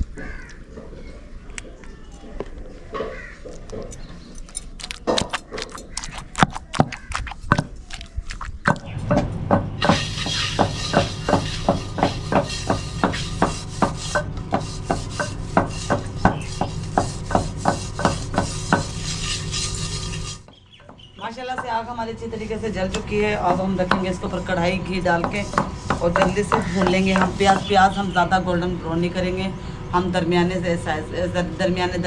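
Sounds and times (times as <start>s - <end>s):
hand scraping metal pot: 3.7s - 9.0s, 9.8s - 20.5s, 23.5s - 28.1s
wooden pestle knocking in mortar: 5.0s - 19.0s, 25.2s - 27.7s.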